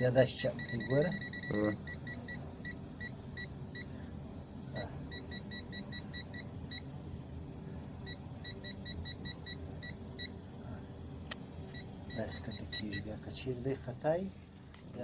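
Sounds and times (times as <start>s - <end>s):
multimeter short beeps: 0.6s - 3.9s.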